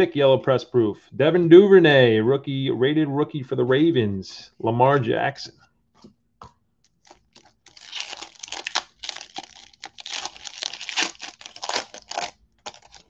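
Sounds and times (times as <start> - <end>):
wrapper tearing and crumpling: 7.0 - 13.0.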